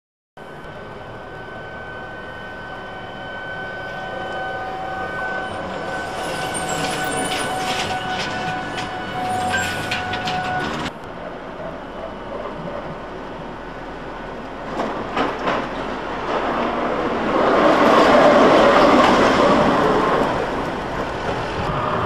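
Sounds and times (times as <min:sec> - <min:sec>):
street noise: 0:00.4 - 0:22.0
trolleybus whine passing: 0:00.4 - 0:22.0.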